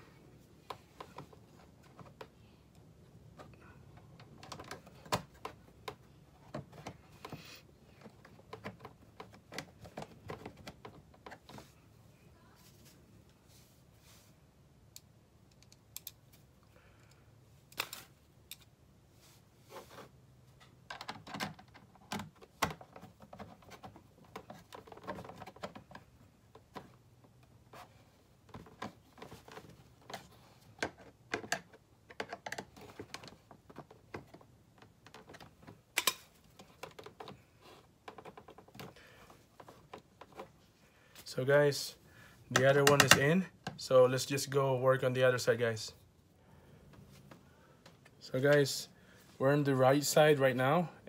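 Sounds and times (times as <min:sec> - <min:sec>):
plastic clicks and knocks: 0:28.5 - 0:37.4, 0:42.5 - 0:43.8.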